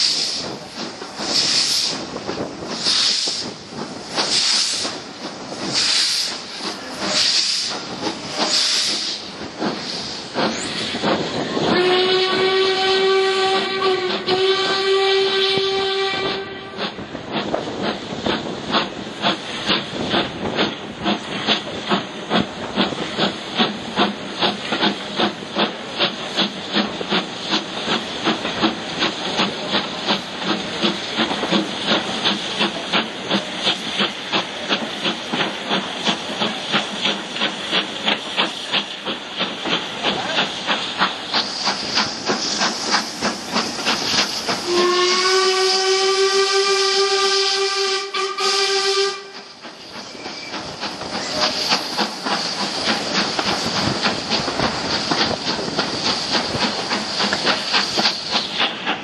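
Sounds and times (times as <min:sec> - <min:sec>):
steam locomotive exhaust beats: 0:00.0 - 0:59.0
steam locomotive whistle: 0:11.6 - 0:17.0, 0:44.6 - 0:50.6.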